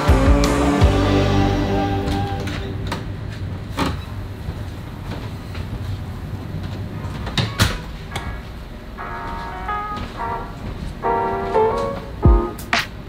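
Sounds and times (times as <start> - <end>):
music with plucked tones: 0.0 - 3.0, 9.0 - 12.8
steady low rumble: 0.0 - 7.2.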